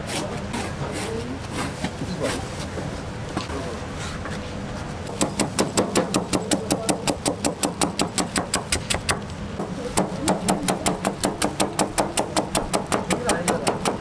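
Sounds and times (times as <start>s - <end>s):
cleaver chopping on plastic board: 5.2s - 9.2s, 10.0s - 14.0s.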